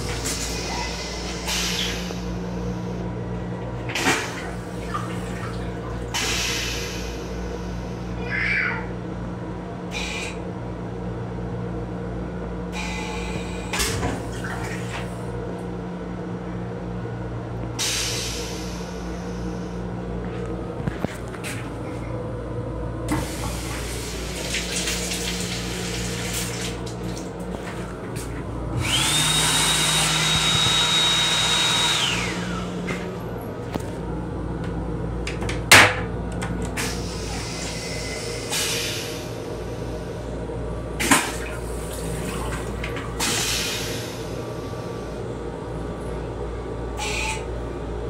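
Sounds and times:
steady low hum: 8.9 - 48.0
small electric motor whining: 28.8 - 32.6.

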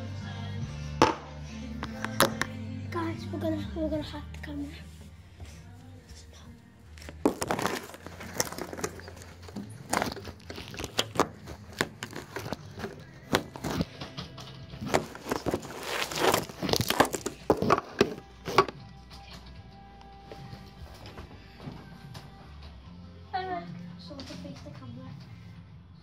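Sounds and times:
background music: 0.0 - 26.0
phone handling rustles and knocks: 7.0 - 14.2, 14.8 - 18.8.

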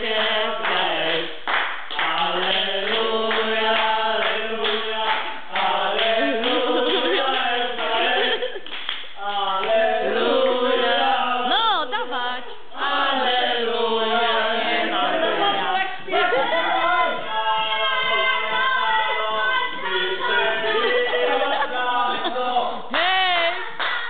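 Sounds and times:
men singing together: 0.0 - 8.6, 9.2 - 11.8, 12.6 - 22.9.

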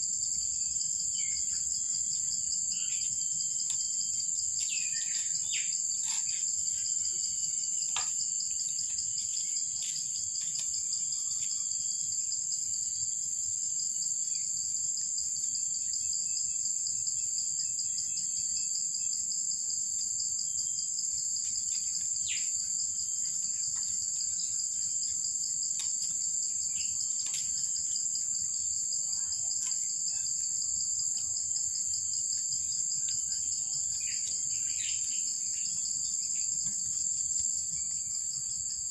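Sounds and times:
high-pitched insect chorus: 0.0 - 38.9
small ticks: 2.9 - 6.6, 7.8 - 11.6, 23.2 - 28.3, 29.5 - 30.0, 32.2 - 35.8.

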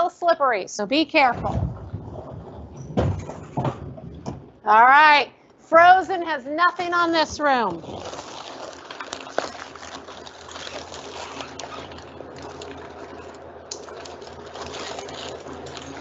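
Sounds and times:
freezer fans humming: 0.0 - 16.0
plastic strip curtain rustling: 6.8 - 16.0.

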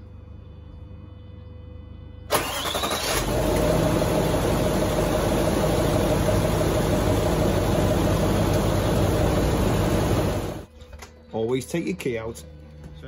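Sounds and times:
diesel engine starter cranking: 2.3 - 10.6
diesel engine idling: 2.3 - 10.7.

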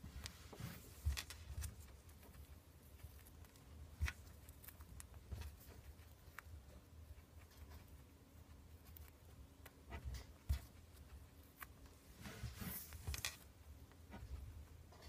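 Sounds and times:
guinea pig chewing: 0.0 - 15.0.

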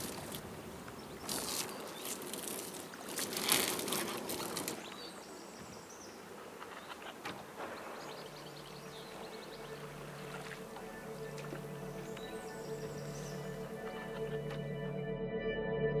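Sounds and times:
plant stems rustling and crackling: 0.0 - 5.2
outdoor ambience by water: 0.0 - 15.0.

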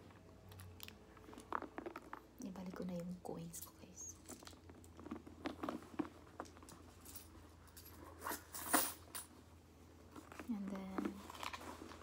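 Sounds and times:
coins clinking: 7.0 - 9.3.

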